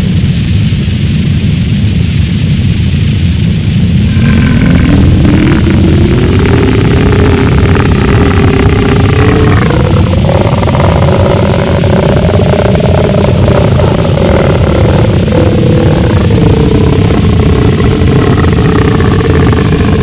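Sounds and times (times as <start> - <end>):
distorted harsh noise music: 0.0 - 20.0
wavering pitched drone: 3.9 - 20.0.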